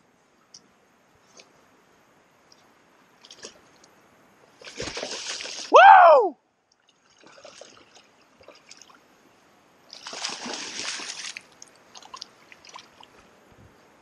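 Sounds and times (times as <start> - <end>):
fish splashing at water surface: 4.6 - 5.7, 9.9 - 13.1.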